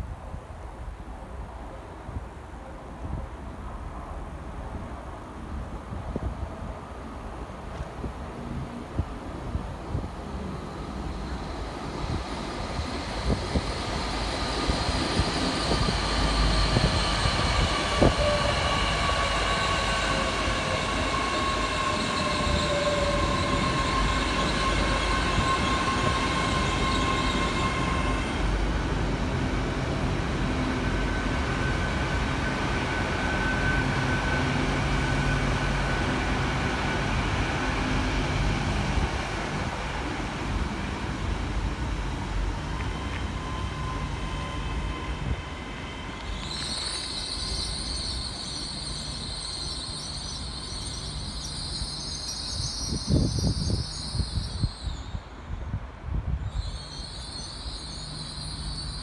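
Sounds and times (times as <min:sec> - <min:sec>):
low train hum: 0:00.0 - 0:59.0
train wheels rumbling on rail: 0:03.5 - 0:59.0.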